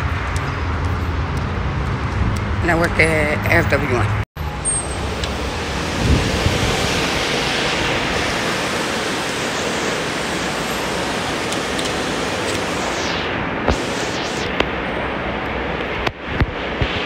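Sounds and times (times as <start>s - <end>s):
rushing air noise: 4.1s - 17.0s.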